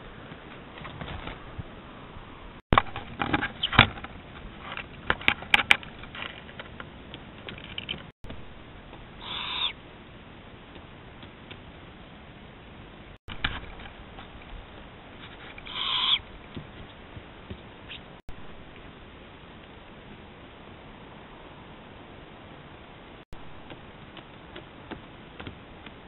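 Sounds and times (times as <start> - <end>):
owl harsh rasp: 9.2 - 9.8, 15.3 - 16.2.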